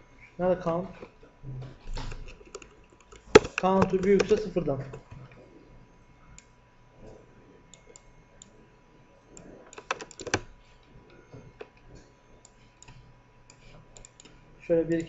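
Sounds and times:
computer keyboard keystrokes: 2.3s - 5.2s, 9.7s - 10.5s, 12.4s - 14.4s.

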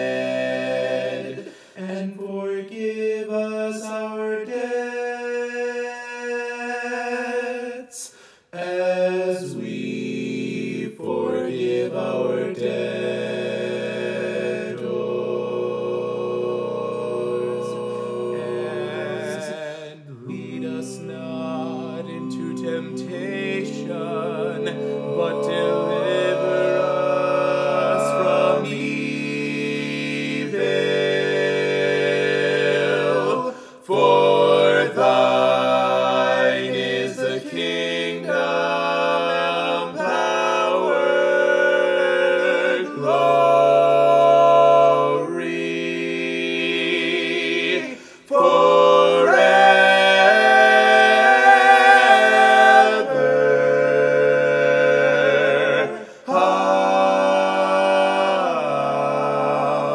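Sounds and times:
man singing layered harmony: 0.0s - 9.8s, 17.3s - 29.6s, 32.8s - 41.2s.

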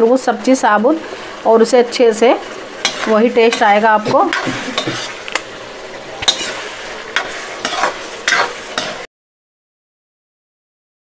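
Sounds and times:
low sizzle: 0.0s - 9.1s
spatula scraping steel pan: 2.8s - 5.3s, 6.1s - 9.1s.

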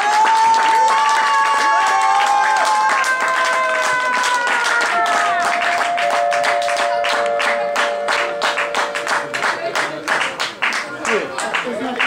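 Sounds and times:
spectators clapping in rhythm: 0.0s - 12.0s
long held musical notes: 5.4s - 9.7s.

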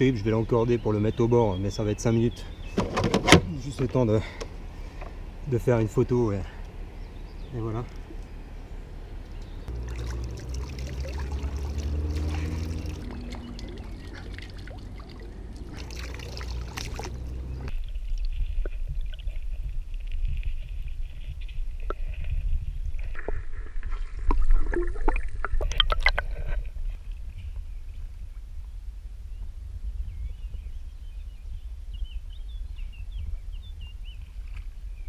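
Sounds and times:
water splashing against kayak: 9.7s - 17.6s
underwater clicks and knocks: 23.0s - 26.6s.

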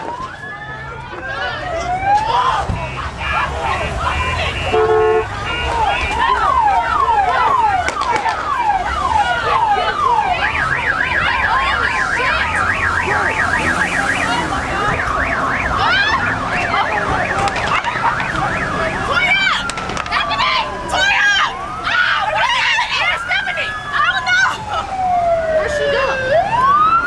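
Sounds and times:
emergency vehicle sirens: 0.0s - 27.0s.

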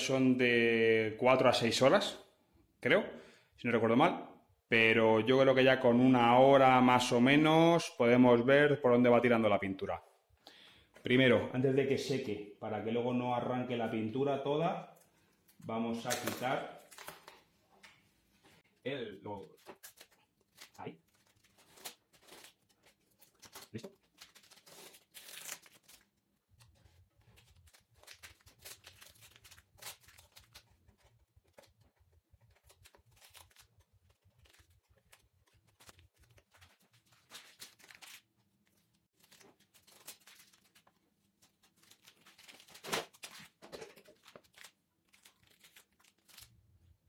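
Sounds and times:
masking tape peeling: 19.6s - 31.7s.

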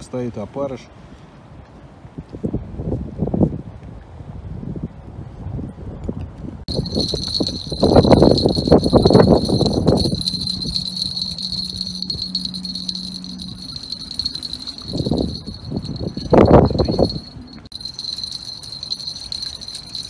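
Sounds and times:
wind buffeting microphone: 2.2s - 20.0s
high-pitched ringing tone: 6.7s - 20.0s.

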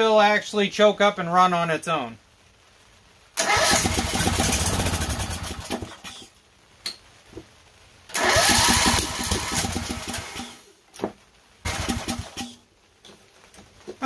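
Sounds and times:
lawn tractor engine cranking: 3.4s - 6.0s, 8.1s - 10.6s, 11.7s - 12.6s.

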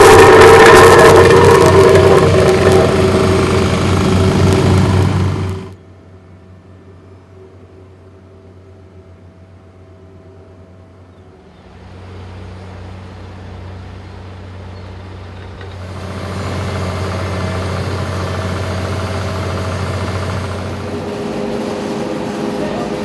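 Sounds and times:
asphalt paver engine: 0.0s - 23.0s
asphalt roller engine running: 0.0s - 23.0s.

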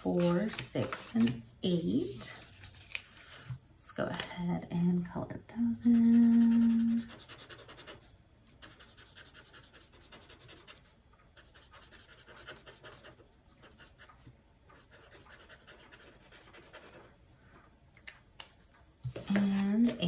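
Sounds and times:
marker scratching on paper: 0.0s - 1.2s, 5.9s - 17.2s.

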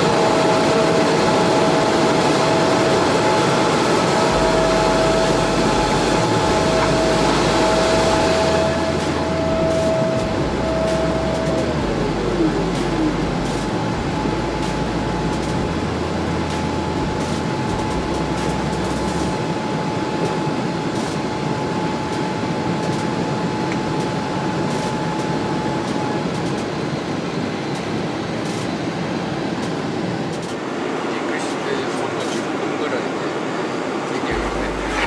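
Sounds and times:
engine and airflow rush: 0.0s - 35.0s
thin steady whine: 0.0s - 35.0s
deep rumble: 1.2s - 19.4s, 34.3s - 35.0s.

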